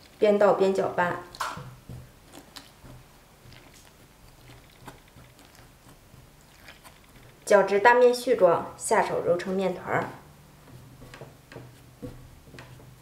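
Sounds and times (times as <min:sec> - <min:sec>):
chopsticks scraping in a bowl: 0:02.2 - 0:07.5.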